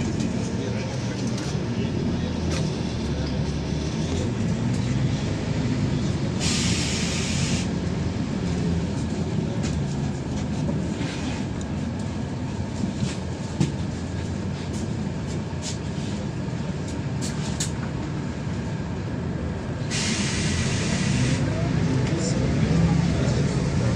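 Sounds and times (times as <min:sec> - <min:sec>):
bus diesel engine humming: 0:00.0 - 0:23.9
road rumble: 0:00.0 - 0:23.9
air hiss: 0:06.4 - 0:07.7, 0:19.9 - 0:21.4.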